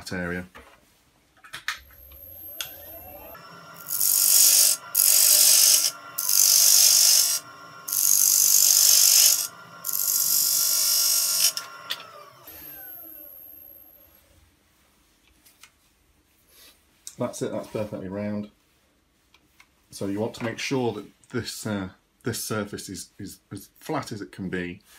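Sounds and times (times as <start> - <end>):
lathe motor whine: 1.8 - 14.2
gouge scraping spinning wood: 2.0 - 13.7.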